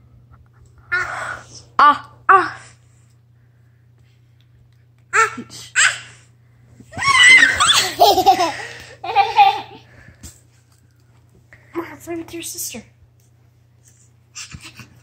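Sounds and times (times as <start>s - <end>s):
children laughing and squealing: 7.0s - 9.8s.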